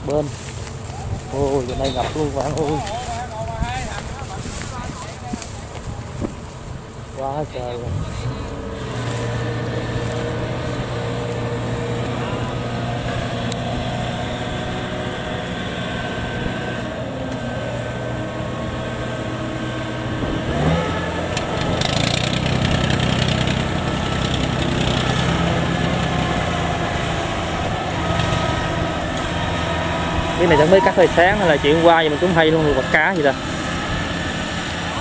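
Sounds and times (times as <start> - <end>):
diesel engine running and revving: 0.0 - 35.0.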